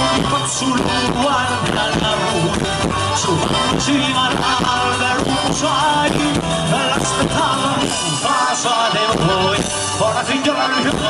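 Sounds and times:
acoustic guitars: 0.0s - 11.0s
live folk band playing: 0.0s - 11.0s.

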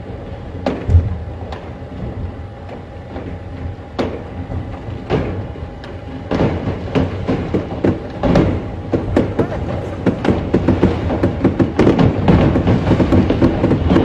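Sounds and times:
fireworks bangs and crackles: 6.3s - 14.0s.

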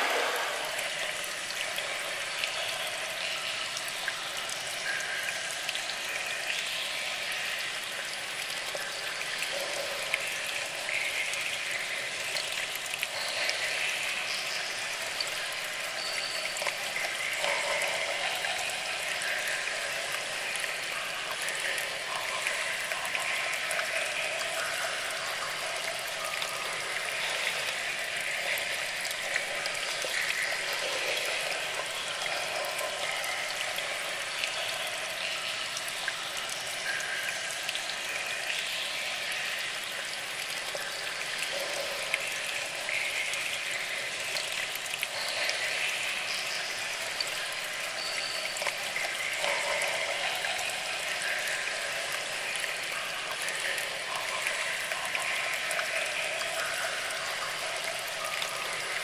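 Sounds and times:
water splashing down waterfall: 0.0s - 2.2s.

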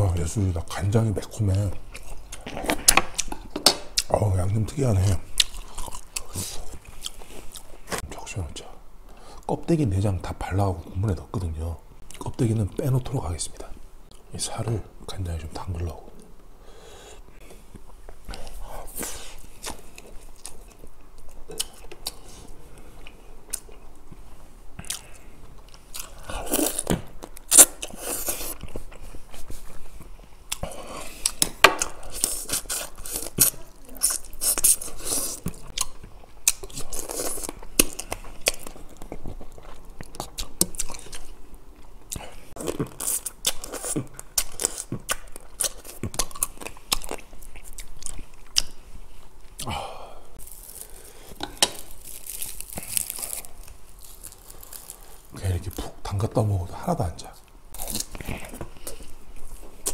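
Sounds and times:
person chewing crab: 5.3s - 8.0s, 24.8s - 29.8s, 30.5s - 55.4s.

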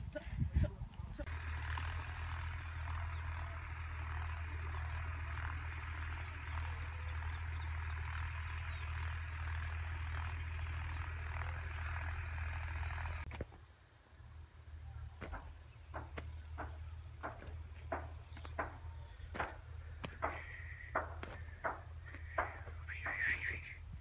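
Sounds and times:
chorus of small calls: 18.5s - 23.8s.

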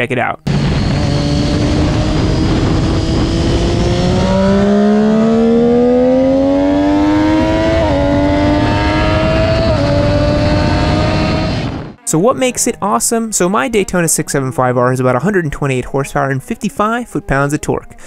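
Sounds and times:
motorcycle engine accelerating: 0.5s - 12.0s.

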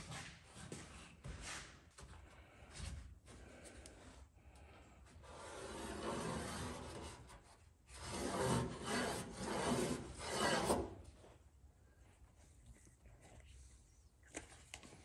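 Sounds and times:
file rasping on sheet steel: 5.3s - 7.3s, 7.9s - 11.0s.

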